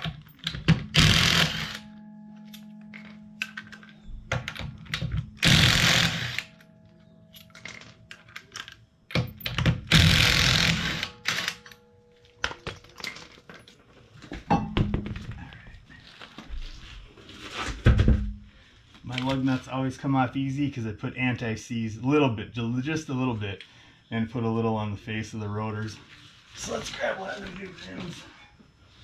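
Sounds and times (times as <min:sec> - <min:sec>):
impact wrench bursts: 0:00.8 - 0:01.9, 0:05.4 - 0:06.6, 0:09.1 - 0:11.7.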